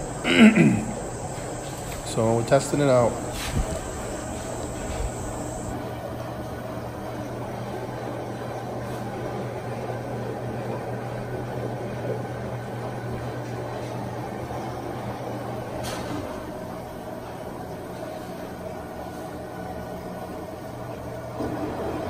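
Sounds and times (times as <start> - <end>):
washer motor humming: 0.0 - 5.8.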